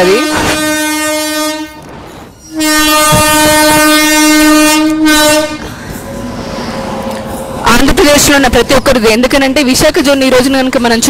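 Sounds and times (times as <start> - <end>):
locomotive horn blasts: 0.0 - 1.9, 2.5 - 5.7
train running noise: 0.0 - 11.0.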